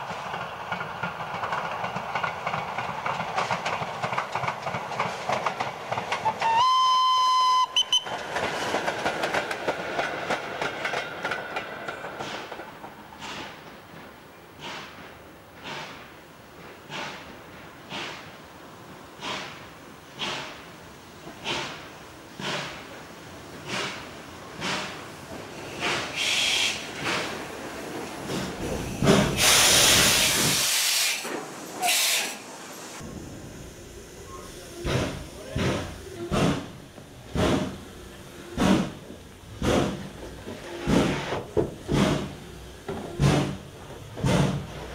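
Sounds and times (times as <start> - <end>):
train wheels clicking on track: 0.0 - 32.4, 34.2 - 44.9
steam locomotive hissing: 0.0 - 44.9
steam whistle: 6.2 - 8.1.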